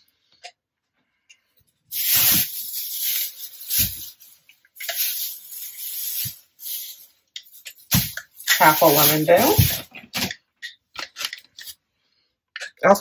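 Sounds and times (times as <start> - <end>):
plastic bag rustling and crinkling: 1.9 - 10.3.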